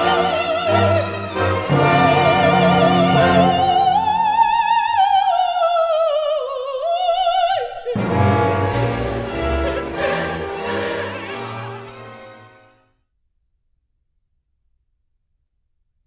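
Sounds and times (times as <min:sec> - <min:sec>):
symphony orchestra playing: 0:00.0 - 0:04.8, 0:07.9 - 0:12.8
operatic soprano singing: 0:00.0 - 0:11.8.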